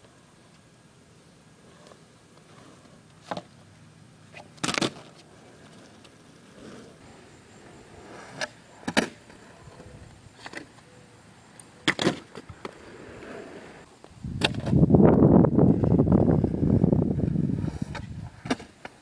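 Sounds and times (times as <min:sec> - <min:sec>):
skateboard clacking on road: 0:04.3 - 0:10.8
wheels rumbling on asphalt: 0:12.4 - 0:18.5.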